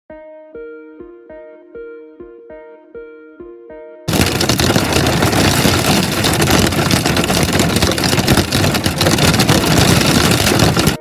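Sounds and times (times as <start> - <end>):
heavy rain on a car: 4.1 - 11.0.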